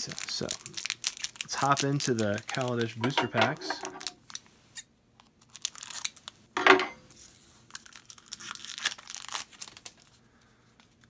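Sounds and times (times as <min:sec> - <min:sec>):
foil wrapper tearing and crinkling: 0:00.0 - 0:04.5, 0:05.3 - 0:06.4, 0:07.1 - 0:10.2.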